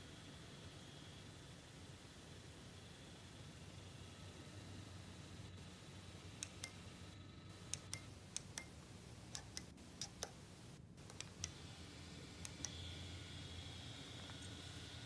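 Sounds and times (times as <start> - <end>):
faint steady hum: 0.0 - 15.0
push buttons clicking: 7.6 - 10.4, 11.0 - 11.6.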